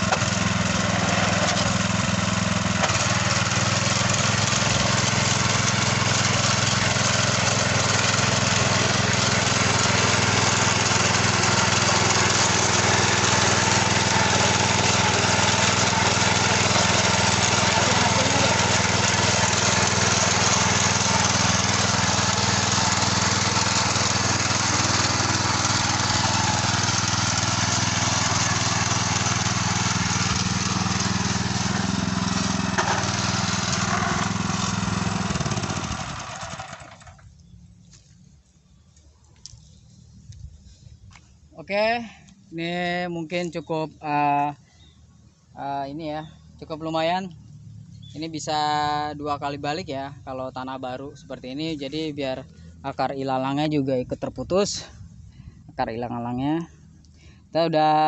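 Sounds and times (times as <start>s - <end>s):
tiller engine running: 0.0s - 38.2s
tines churning soil: 0.0s - 43.8s.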